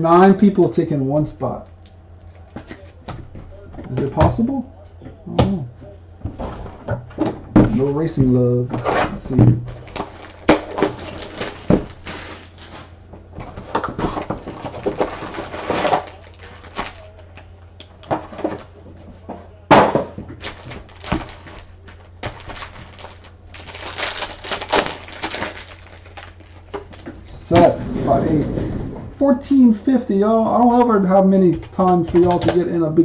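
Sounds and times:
foil packs crinkling: 9.7 - 17.5, 20.3 - 27.4.

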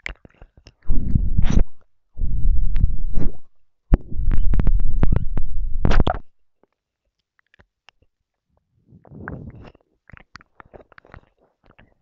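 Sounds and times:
breath hitting microphone: 8.8 - 9.8
wet mouth clicks and smacks: 9.3 - 12.0.

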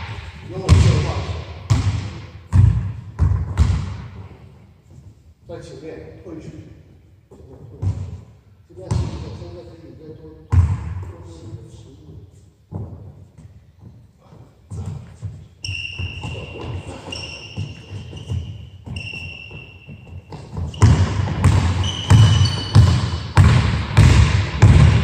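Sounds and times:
basketball bouncing on wood floor: 1.7 - 4.0, 10.5 - 11.1, 14.7 - 25.0
sneakers squeaking: 12.3 - 25.0.

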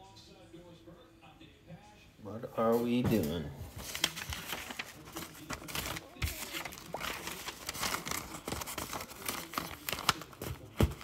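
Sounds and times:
paper rustling and crinkling: 2.8 - 11.0.

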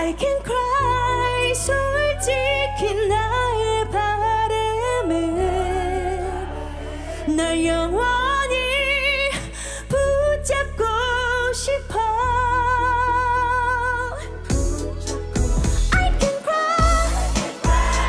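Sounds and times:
woman singing with vibrato: 0.0 - 18.0.

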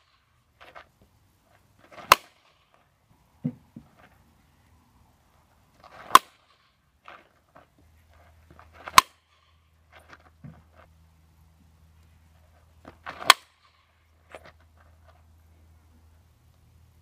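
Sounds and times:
bat hitting softball: 1.8 - 2.8, 5.8 - 7.2, 8.7 - 9.6, 12.9 - 13.9.

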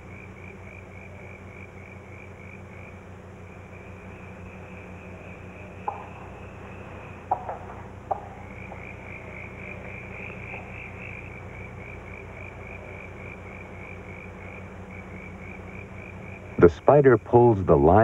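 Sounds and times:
faint low hum: 0.0 - 18.0.

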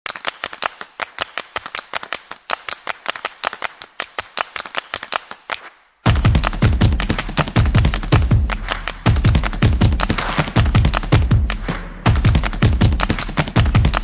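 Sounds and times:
dry percussive claps and clicks: 0.1 - 14.0
music beat with heavy bass: 6.0 - 14.0.

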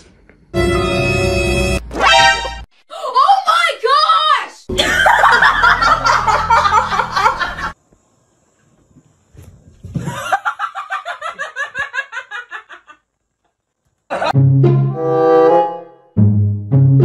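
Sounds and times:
person laughing in rhythmic pulses: 4.7 - 7.7, 10.0 - 13.0
loud burst of laughter: 4.7 - 7.8, 10.1 - 13.0.

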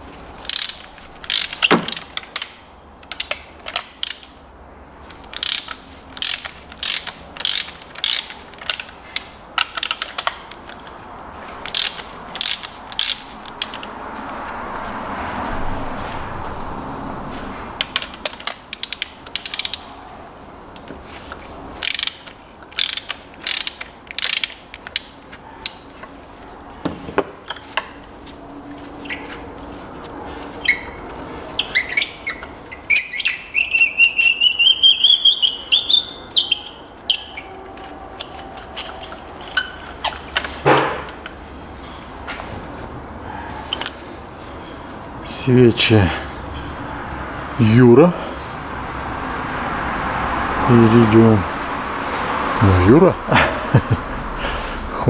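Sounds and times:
ratchet wrench clicking: 0.4 - 4.4, 5.2 - 10.9, 11.6 - 13.9, 17.8 - 19.9, 21.8 - 25.1, 31.6 - 40.5.

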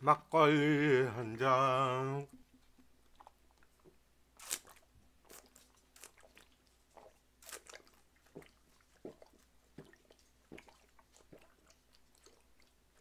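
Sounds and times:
man gulping swallows: 2.2 - 4.0, 6.2 - 7.2.

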